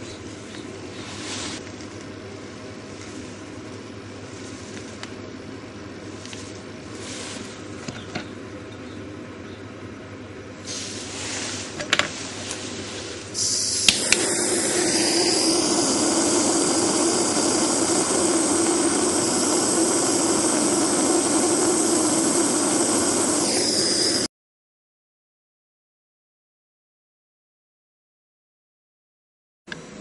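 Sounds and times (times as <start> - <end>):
soldering torch hissing: 0.0 - 2.1, 6.0 - 7.8, 10.6 - 24.3.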